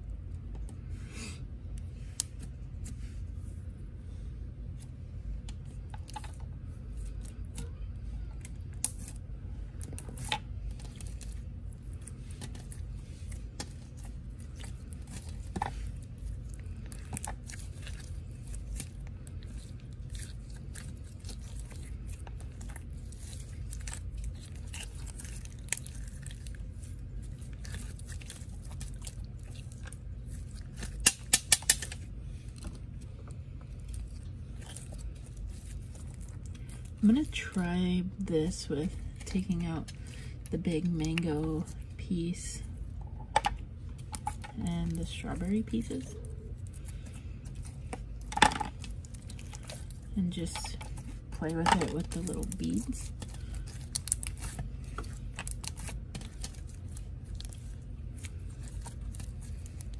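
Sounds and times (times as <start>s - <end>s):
slime squished by hand: 50.9s - 59.9s.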